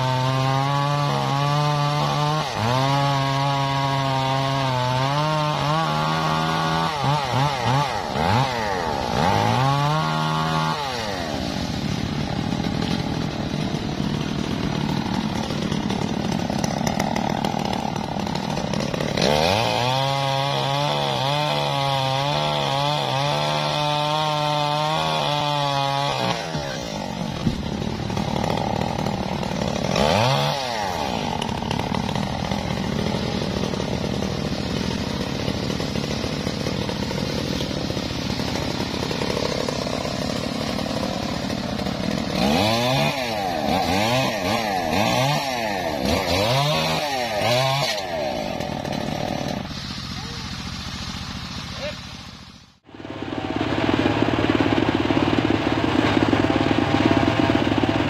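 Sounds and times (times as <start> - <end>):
chainsaw cutting and revving: 0.0 - 58.0.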